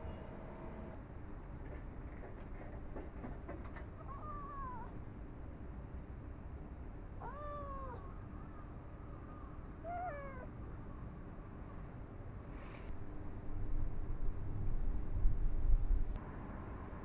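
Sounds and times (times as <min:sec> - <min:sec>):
cat meowing: 0:04.0 - 0:04.9, 0:07.2 - 0:08.1, 0:09.8 - 0:10.5.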